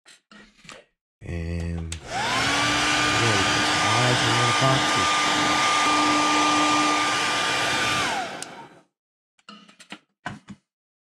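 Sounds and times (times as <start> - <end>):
hot-air dryer fan whining: 2.0 - 8.8.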